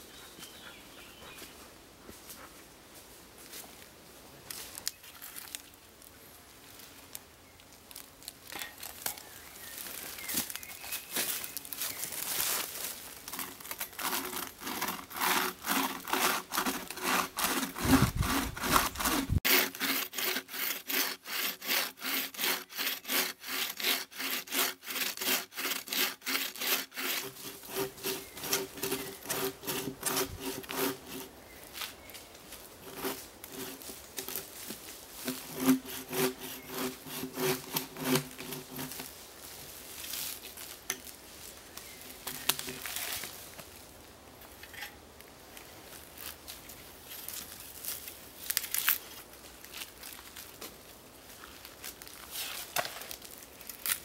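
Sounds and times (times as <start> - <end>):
bucksaw cutting through log: 13.2 - 31.4, 32.8 - 34.5, 35.2 - 39.1.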